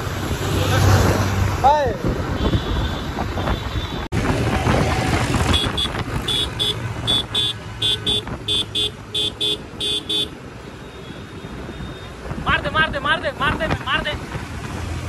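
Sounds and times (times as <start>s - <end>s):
wind rush: 1.0s - 6.4s.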